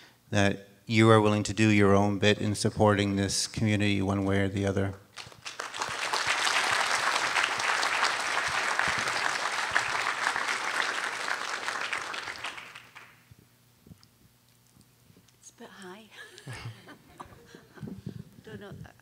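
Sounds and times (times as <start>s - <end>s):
audience applauding: 5.2s - 13.3s.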